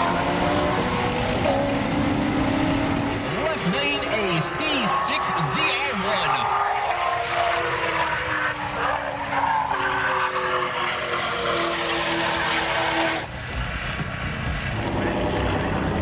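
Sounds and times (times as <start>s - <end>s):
sports car engine at full throttle: 0.0s - 16.0s
low even engine rumble: 13.3s - 16.0s.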